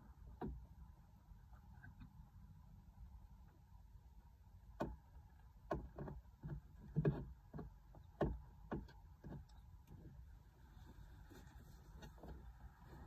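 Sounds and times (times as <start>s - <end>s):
low steady hum: 0.0s - 13.0s
soft knocks and taps: 5.7s - 10.1s.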